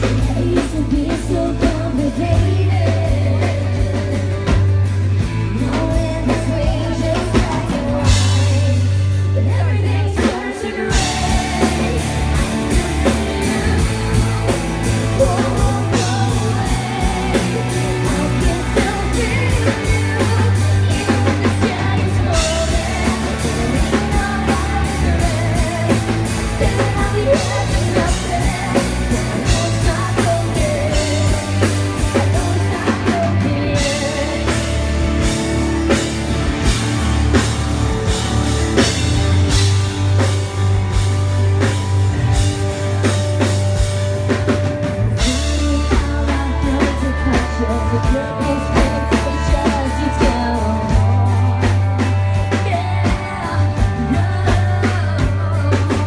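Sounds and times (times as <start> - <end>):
woman singing into microphone: 0.0 - 4.5, 5.5 - 34.9, 45.1 - 56.0
live rock band playing: 0.0 - 56.0.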